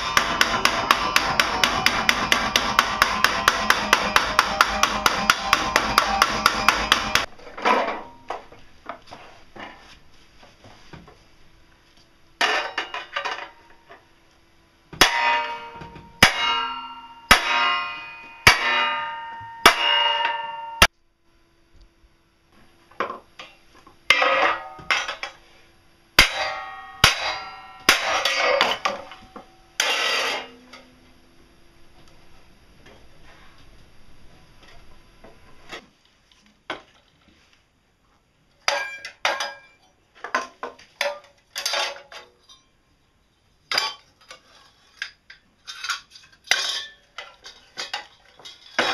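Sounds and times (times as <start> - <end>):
hammer clanging on steel plate: 15.0 - 20.9, 24.1 - 25.4, 26.2 - 30.9.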